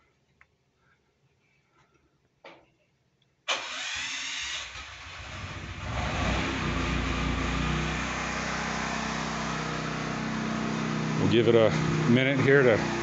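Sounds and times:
generator starting and running: 3.5 - 13.0.

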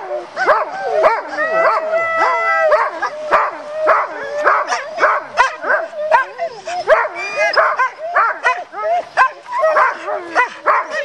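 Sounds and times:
dogs yelping and howling: 0.0 - 11.0.

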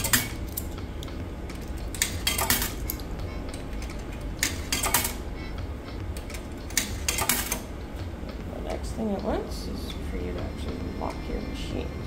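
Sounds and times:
coins clinking into coin slot: 0.0 - 0.8, 1.5 - 5.2, 6.2 - 7.6.

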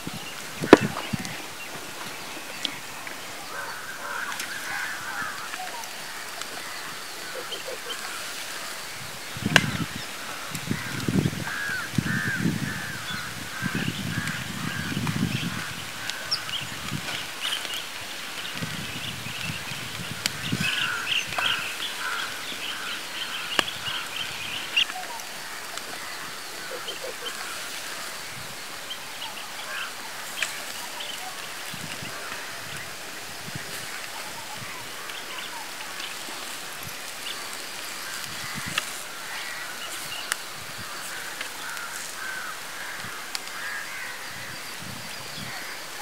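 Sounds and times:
fire crackle: 0.0 - 44.4
bird calling: 0.0 - 44.5
open fire hissing: 13.0 - 44.0.

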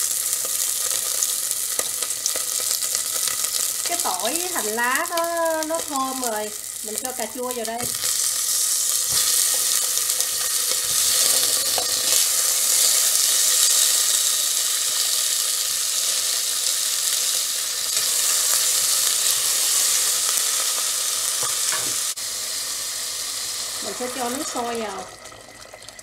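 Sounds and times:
food sizzling in hot oil: 0.0 - 26.0
chopsticks stirring food in pot: 7.8 - 12.3.

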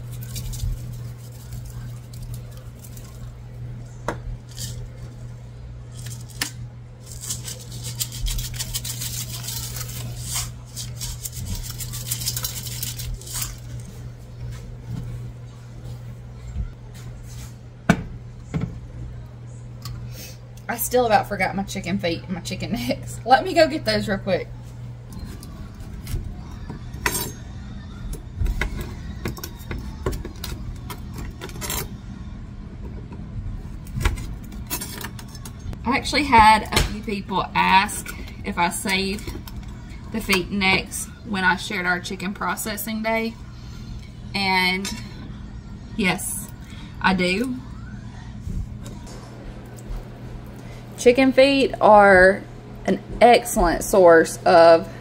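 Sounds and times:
seasoning rattling in shakers: 0.0 - 3.0, 7.0 - 13.8
steady low hum: 0.0 - 55.0.

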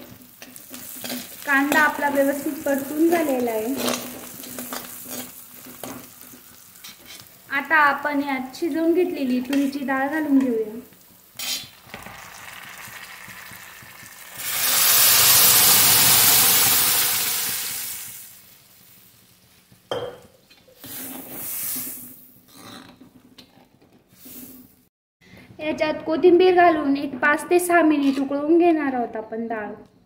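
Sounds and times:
food sizzling in hot oil: 0.0 - 19.9, 20.7 - 22.3
spoon scraping pan: 3.4 - 7.4.

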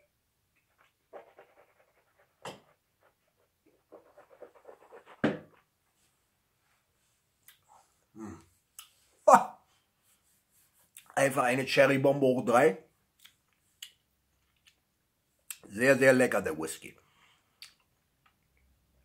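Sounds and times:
mouth click: 17.6 - 17.9.

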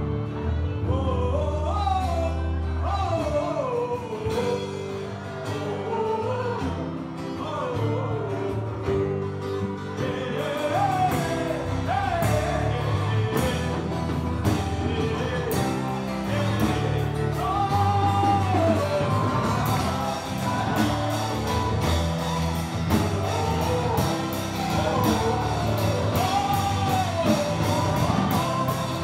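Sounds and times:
keyboard and bass chords: 0.0 - 29.0
solo voice singing: 0.4 - 29.0
drum hits: 11.1 - 29.0.

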